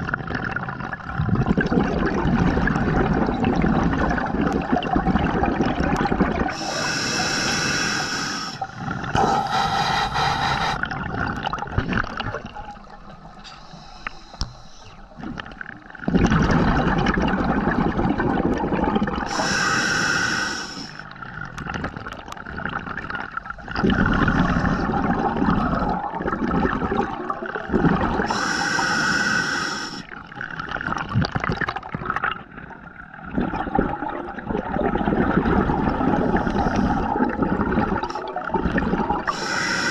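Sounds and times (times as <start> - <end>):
loud bursts of bubbling: 0.0 - 7.6, 16.0 - 20.1, 21.7 - 32.4, 33.3 - 39.9
steady underwater noise: 0.0 - 39.9.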